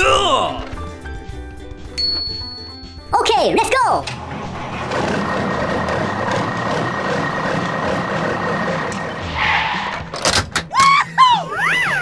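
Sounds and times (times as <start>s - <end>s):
vehicle engine and tyre noise: 4.4s - 10.3s
brief whoosh: 9.2s - 10.4s.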